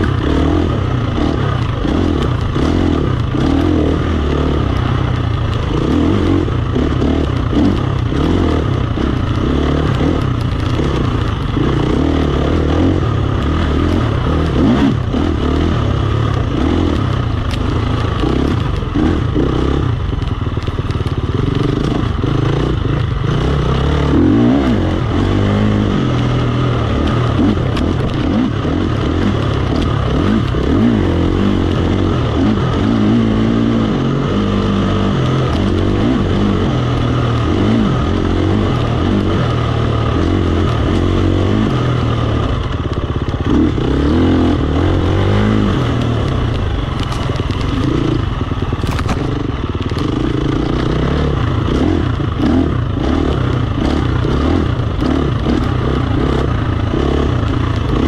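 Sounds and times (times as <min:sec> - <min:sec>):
dirt bike engine revving: 0:00.0 - 0:58.0
bike clattering over rough ground: 0:42.7 - 0:51.0.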